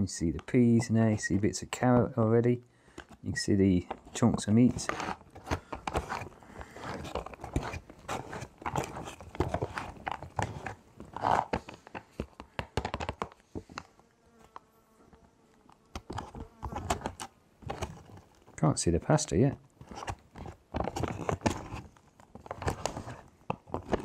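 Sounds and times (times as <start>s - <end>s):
spoon stirring in plastic pouch: 4.0s - 11.8s.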